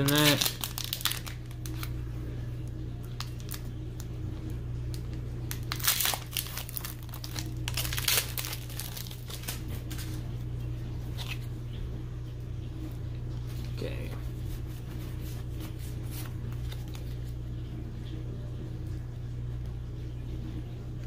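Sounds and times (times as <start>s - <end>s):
foil wrapper crinkling: 0.0s - 2.0s, 3.0s - 4.1s, 4.9s - 10.3s, 15.2s - 17.4s.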